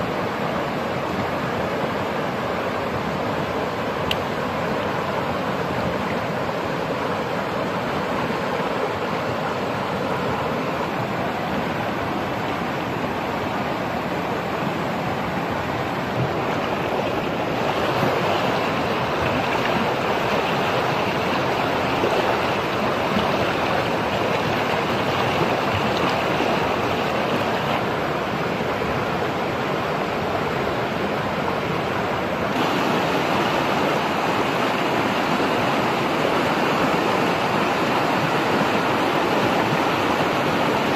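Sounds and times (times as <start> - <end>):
stream rushing over rocks: 0.0 - 40.9.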